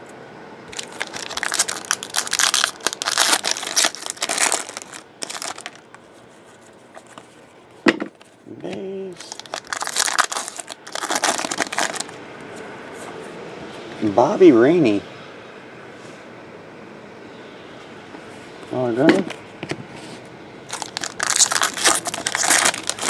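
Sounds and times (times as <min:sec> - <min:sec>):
foil wrappers tearing and crinkling: 0:00.7 - 0:06.0, 0:09.2 - 0:12.2, 0:20.7 - 0:23.0.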